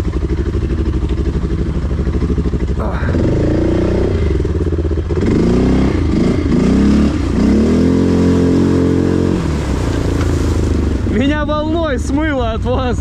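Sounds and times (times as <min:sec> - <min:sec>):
quad bike engine revving: 0:00.0 - 0:11.6.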